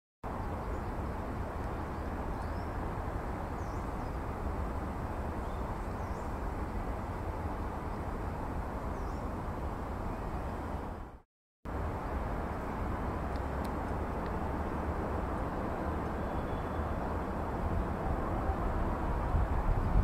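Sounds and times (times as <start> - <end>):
distant traffic rumble: 0.2 - 20.0
faint bird chirps: 16.2 - 17.0.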